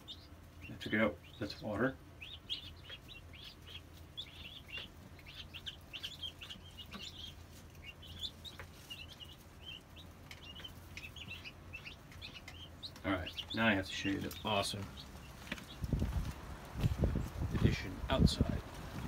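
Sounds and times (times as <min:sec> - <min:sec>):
baby chicks peeping: 0:00.0 - 0:19.0
steady low hum: 0:00.0 - 0:19.0.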